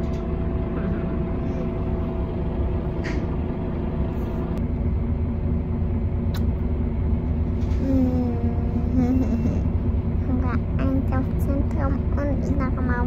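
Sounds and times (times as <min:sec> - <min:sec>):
bus engine and road rumble: 0:00.0 - 0:13.0
constant hum: 0:00.0 - 0:13.0.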